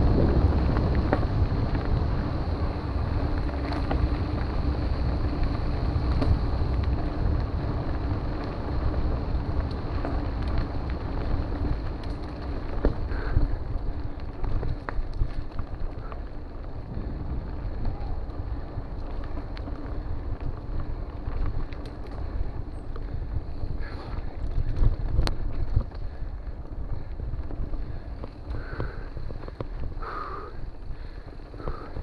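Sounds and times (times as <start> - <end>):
bike clicks and knocks: 0.0 - 32.0
bike tyres rumbling on dirt: 0.0 - 32.0
wind buffeting microphone: 0.0 - 32.0.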